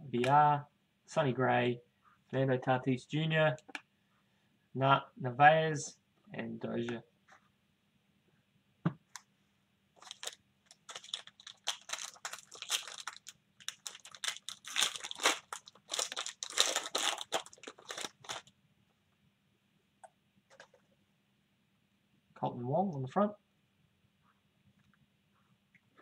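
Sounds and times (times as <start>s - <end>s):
foil wrapper tearing and crinkling: 10.0s - 18.5s.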